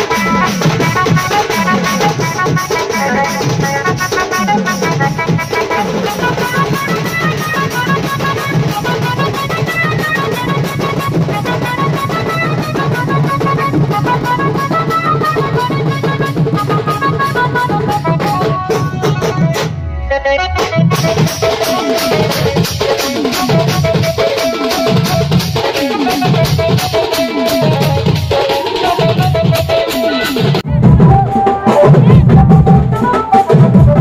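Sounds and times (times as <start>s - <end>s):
dance music with fast drum beat: 20.6s - 34.0s.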